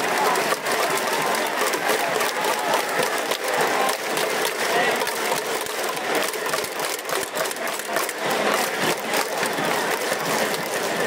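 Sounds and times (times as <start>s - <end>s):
clapping and clicking: 0.0s - 11.0s
crowd cheering and chattering: 0.0s - 11.0s.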